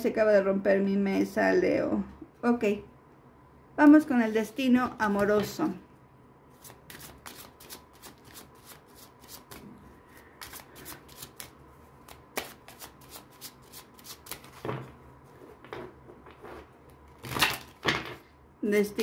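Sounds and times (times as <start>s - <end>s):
cards shuffled by hand: 6.6s - 9.6s, 10.4s - 14.7s.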